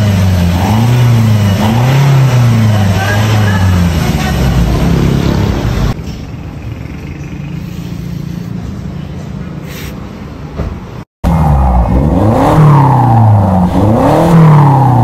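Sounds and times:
car exhaust revving then idling: 0.0 - 6.0, 11.2 - 15.0.

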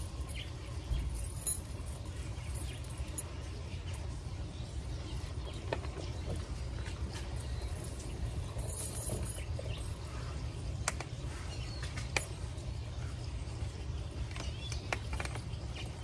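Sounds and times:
metal chain clinking: 0.0 - 4.0, 5.2 - 10.1.

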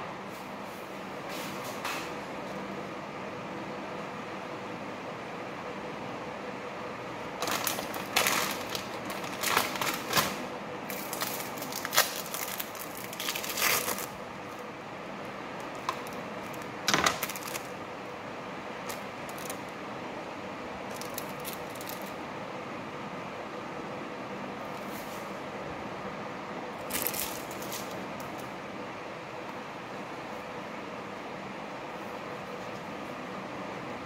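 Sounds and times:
low background hum: 0.0 - 34.0
rustling and crinkling: 7.4 - 14.1.

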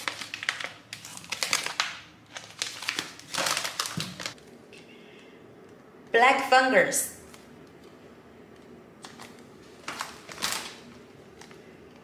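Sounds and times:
plastic packaging crinkling: 0.0 - 4.4, 9.0 - 11.6.

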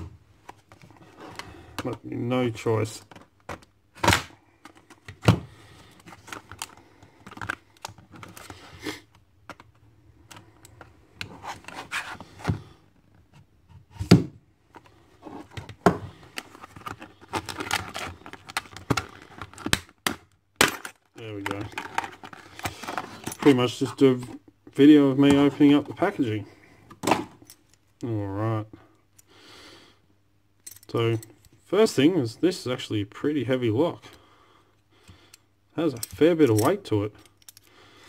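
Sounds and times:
plastic packaging crackling and scraping: 14.8 - 20.0, 20.7 - 24.3.

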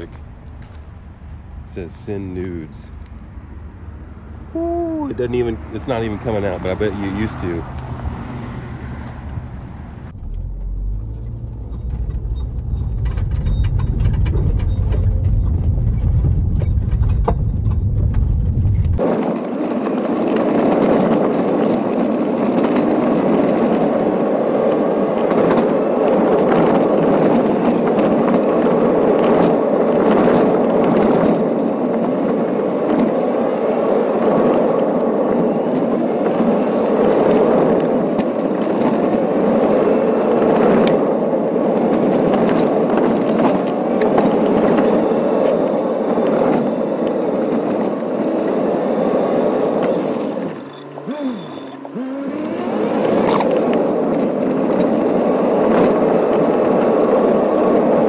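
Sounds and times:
gravel crackling under wheels: 0.0 - 58.0
tyre and road noise: 0.0 - 58.0
low rumble: 7.6 - 19.1.

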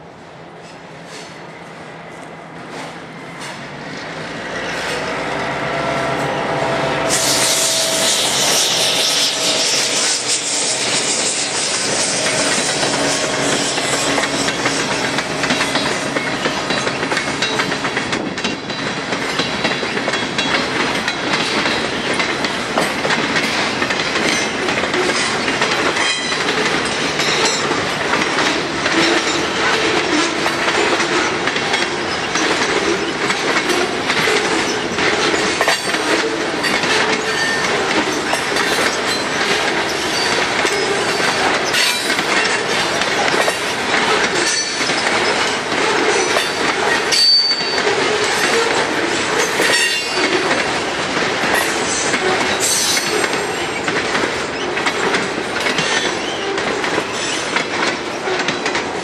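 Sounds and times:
high wheel squeals: 4.6 - 17.6, 33.8 - 42.8, 46.2 - 48.8
train wheels clattering over rail joints: 7.1 - 59.0.

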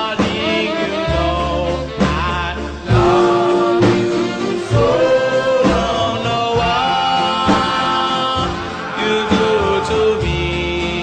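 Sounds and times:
drum strokes: 0.0 - 11.0
person singing long notes: 0.0 - 11.0
reggae beat: 0.0 - 11.0.

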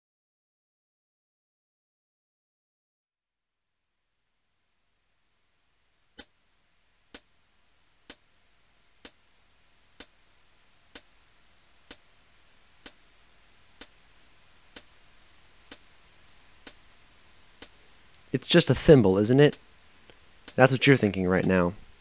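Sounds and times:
faint hiss: 4.0 - 22.0
clock ticking: 13.8 - 14.0, 14.7 - 15.0, 17.5 - 19.6, 20.4 - 22.0.

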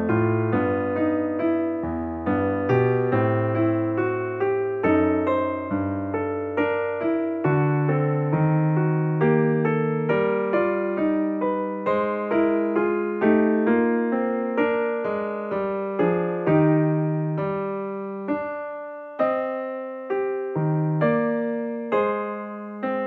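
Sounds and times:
keyboard playing gentle melody: 0.0 - 23.0.

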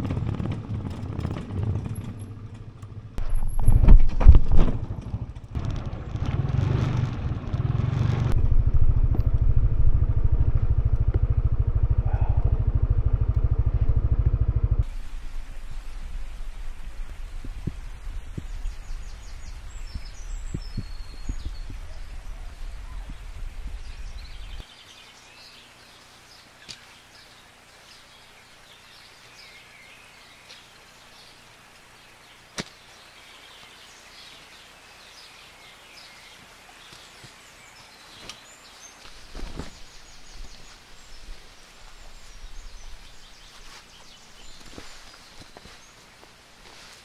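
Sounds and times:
low rumble: 0.0 - 24.6
birds chirping: 11.7 - 46.9.

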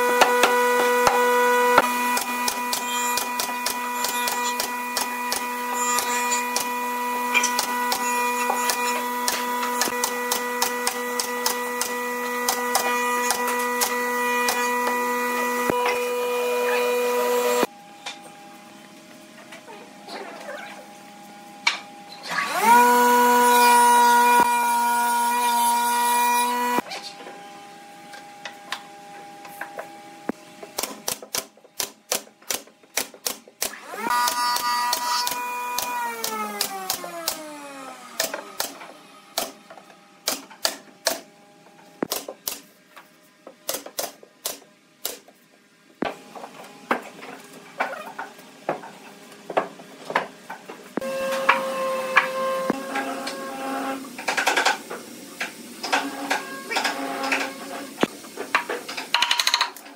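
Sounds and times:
nail gun firing: 30.8 - 37.4.

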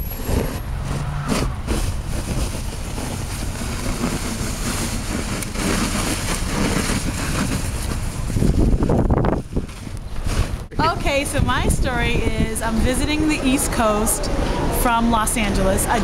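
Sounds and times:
snow shovel scraping pavement: 0.0 - 10.9
wind buffeting microphone: 0.0 - 16.0.

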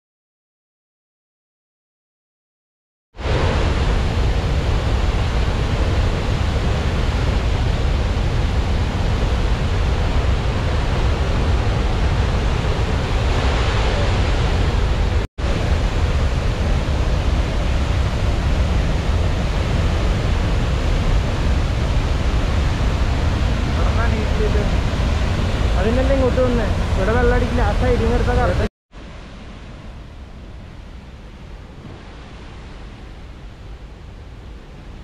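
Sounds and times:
waterfall rushing: 3.2 - 30.6.

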